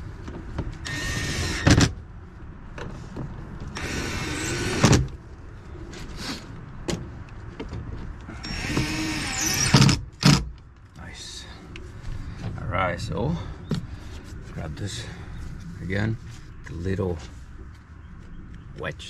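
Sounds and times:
cordless drill whirring: 0.8 - 1.8, 3.8 - 5.0, 8.4 - 10.4.

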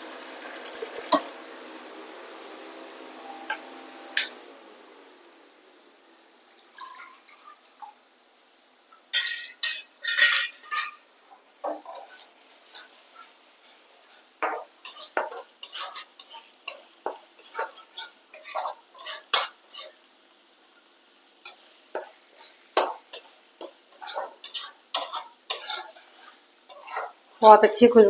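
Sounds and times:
spatula scraping a pan: 9.1 - 20.1, 21.4 - 27.7.

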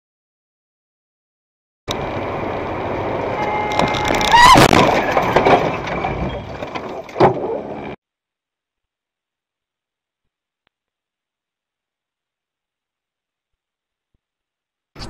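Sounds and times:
road noise inside car: 1.9 - 8.0
loud crash: 3.7 - 7.0.

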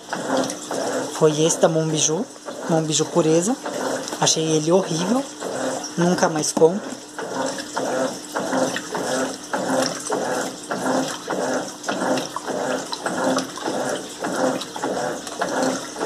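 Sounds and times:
washing machine agitating: 0.0 - 16.0
water sloshing: 0.0 - 16.0.

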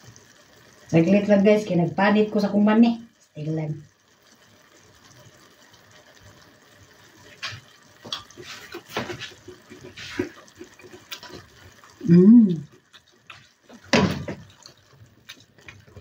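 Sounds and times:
sauce bubbling in a pan: 0.0 - 16.0
pops and clicks from cooking: 4.0 - 16.0.

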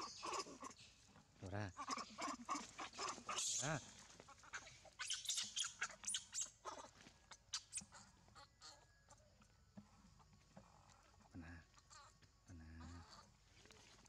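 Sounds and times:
monkey call: 0.0 - 1.0, 1.6 - 9.3, 11.6 - 13.4
monkey high squeaks: 1.8 - 3.7, 4.5 - 6.9, 7.5 - 8.8.

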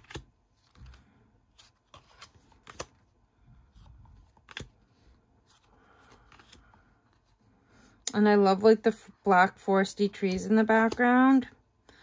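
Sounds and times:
cards sliding: 0.0 - 7.9.

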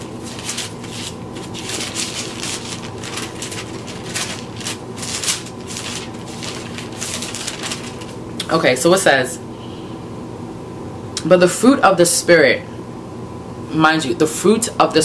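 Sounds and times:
book pages being flipped: 0.0 - 8.2.

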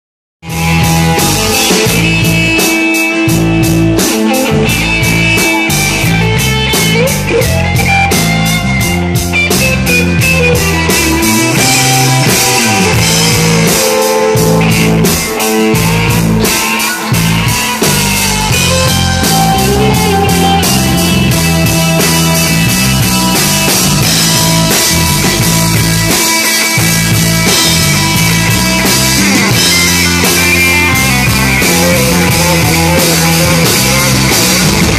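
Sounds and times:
drum-kit beat: 0.4 - 34.9
electric guitar: 0.4 - 34.9.

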